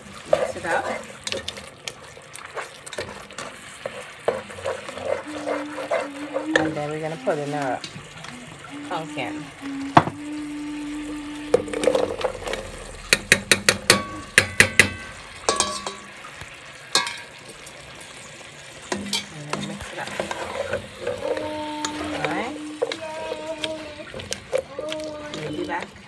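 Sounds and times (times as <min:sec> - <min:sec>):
frying sizzle: 0:00.0 - 0:26.0
spatula stirring food: 0:00.0 - 0:26.0
low steady hum: 0:07.8 - 0:16.2
food pieces knocking in metal pot: 0:11.5 - 0:16.2, 0:17.0 - 0:17.4.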